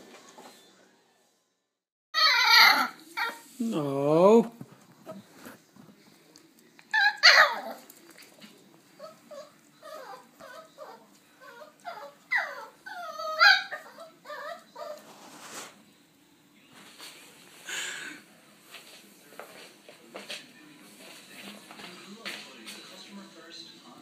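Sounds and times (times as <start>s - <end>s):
puppy whimpering and yipping: 2.2s - 3.4s, 6.9s - 7.8s, 9.0s - 15.0s.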